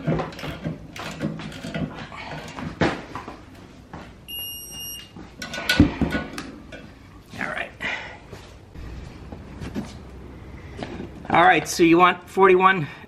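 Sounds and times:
high electronic beep: 0:04.3 - 0:05.1.

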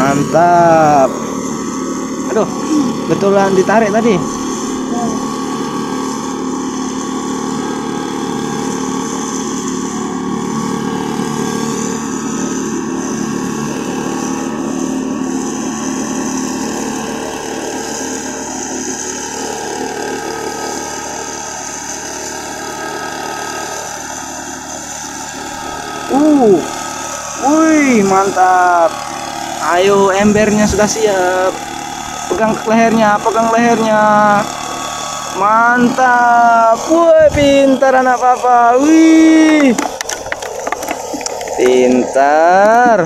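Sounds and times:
small engine running: 0:00.0 - 0:43.0.

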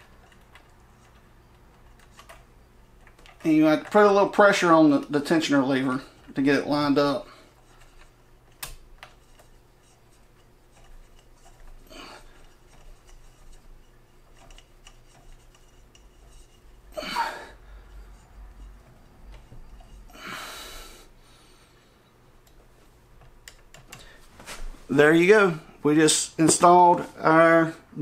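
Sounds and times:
hex key turning a screw: 0:00.0 - 0:04.0, 0:12.4 - 0:16.7.

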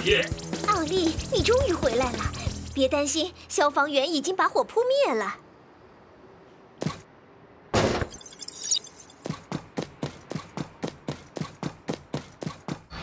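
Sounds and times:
glassy tinkle: 0:08.2 - 0:09.2.

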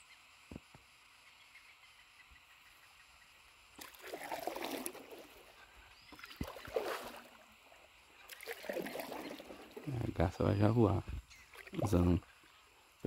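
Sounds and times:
paddle strokes in water: 0:03.8 - 0:07.5, 0:08.2 - 0:09.9.

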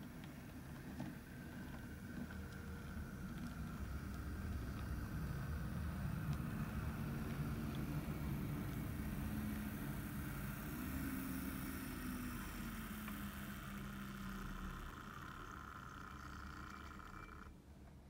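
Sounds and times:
model train running on track: 0:00.0 - 0:17.5.

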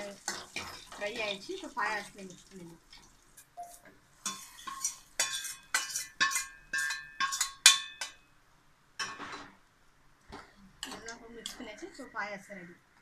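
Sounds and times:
metal ladle scraping a pan: 0:00.2 - 0:01.6, 0:04.2 - 0:08.1.

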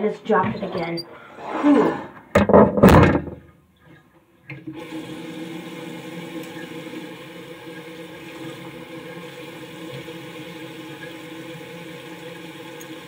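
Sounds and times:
water running: 0:04.4 - 0:13.0.

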